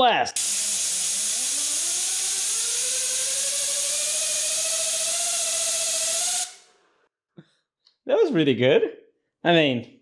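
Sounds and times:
air hissing through turbine: 0.3s - 6.8s
turbine whine: 0.4s - 6.7s.

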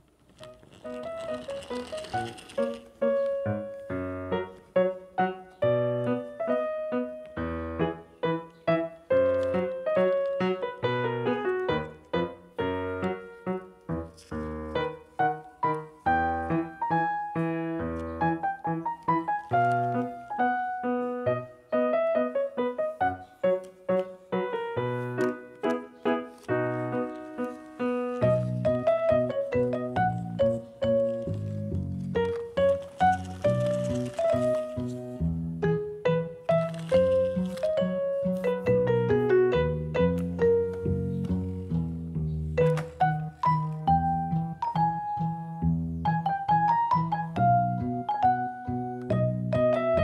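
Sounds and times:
bouncy keyboard music: 0.0s - 50.0s.

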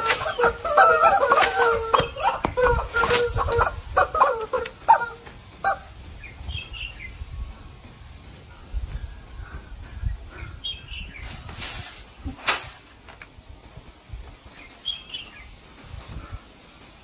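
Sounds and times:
broom swishing through air: 10.3s - 13.2s, 14.4s - 16.5s
sharp smack: 11.5s - 12.9s.

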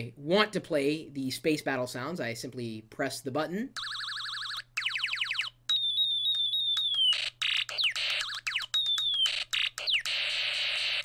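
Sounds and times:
warbling electronic siren: 3.8s - 11.0s.

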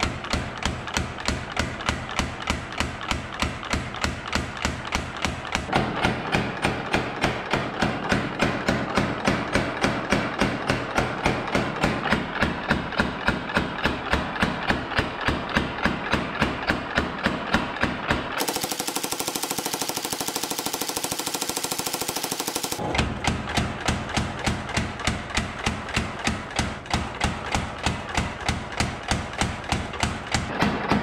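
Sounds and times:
power hammer pounding steel: 0.0s - 31.0s.

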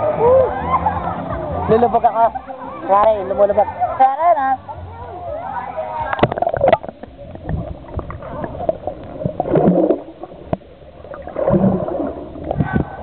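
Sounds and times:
underwater clicks and knocks: 6.1s - 13.0s
underwater gurgling bubbles: 6.1s - 13.0s.

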